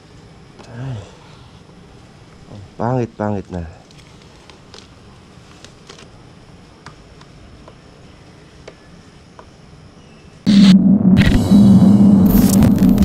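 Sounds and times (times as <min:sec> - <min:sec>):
sticker being peeled off plastic: 0:03.9 - 0:06.1
glitchy intro sound: 0:10.5 - 0:13.0
low hum: 0:10.5 - 0:13.0.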